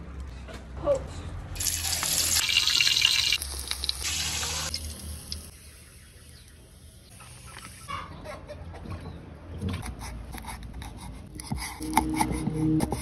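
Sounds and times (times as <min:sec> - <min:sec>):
pork sizzling in hot oil: 0:01.6 - 0:05.8.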